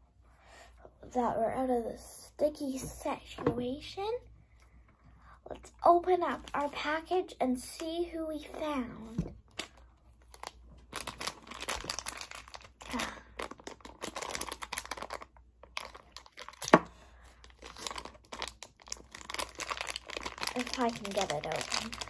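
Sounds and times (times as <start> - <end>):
plastic package crackling: 6.2 - 7.1, 9.4 - 22.0.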